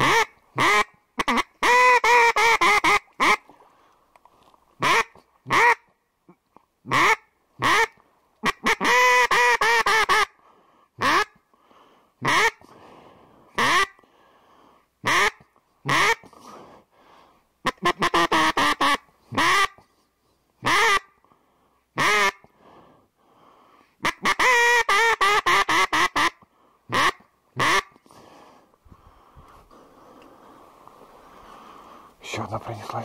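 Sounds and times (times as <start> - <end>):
duck quacking: 0.0 - 3.5, 4.8 - 5.9, 6.9 - 10.4, 11.0 - 11.4, 12.2 - 12.7, 13.6 - 14.0, 15.0 - 16.3, 17.6 - 19.8, 20.6 - 21.1, 22.0 - 22.5, 24.0 - 28.0.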